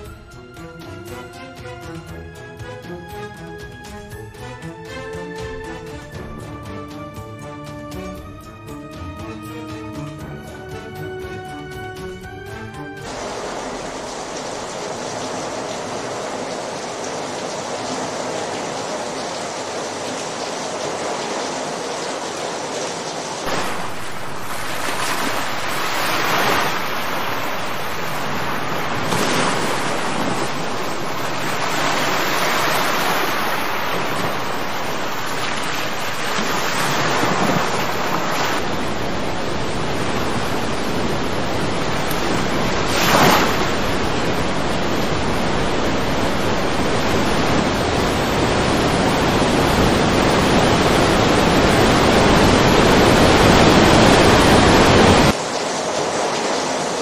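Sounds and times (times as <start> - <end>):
rushing floodwater: 12.5 - 57.0.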